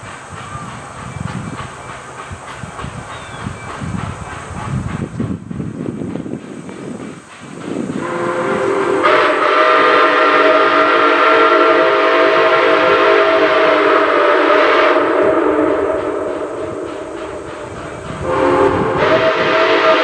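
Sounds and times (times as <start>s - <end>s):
steam whistle blast: 8.0s - 17.4s, 18.2s - 20.0s.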